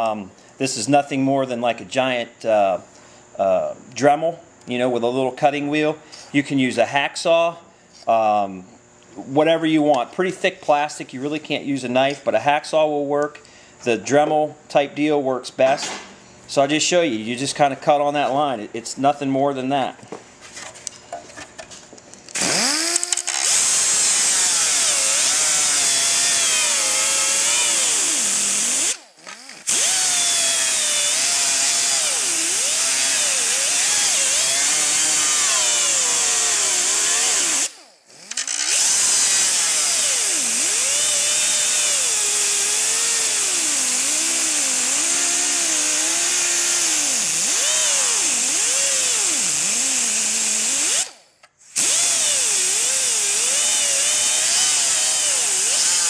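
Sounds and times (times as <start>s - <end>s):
die grinder cutting plastic: 22.3s - 56.0s.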